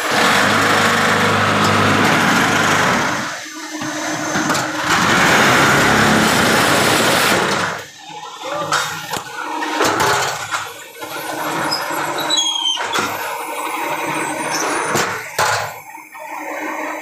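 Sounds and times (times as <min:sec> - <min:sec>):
block making machine humming: 0:00.0 - 0:17.0
short high squeaks: 0:11.6 - 0:13.0.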